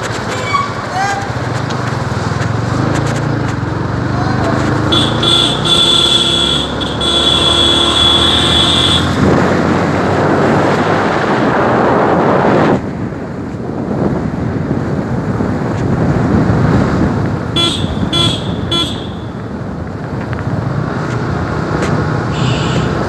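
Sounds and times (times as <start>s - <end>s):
motorcycle engine running: 0.0s - 10.5s, 14.4s - 23.0s
road noise: 0.0s - 23.0s
wind noise on microphone: 8.4s - 23.0s.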